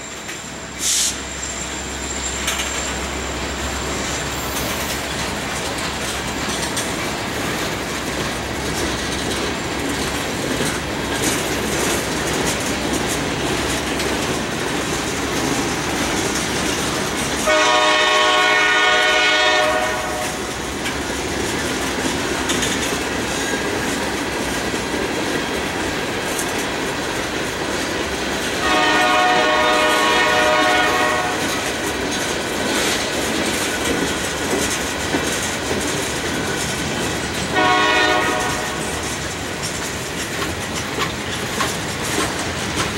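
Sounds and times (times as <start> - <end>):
freight train wheels clattering: 0.0 - 42.9
locomotive horn blasts: 17.4 - 20.4, 28.6 - 31.7, 37.5 - 38.9.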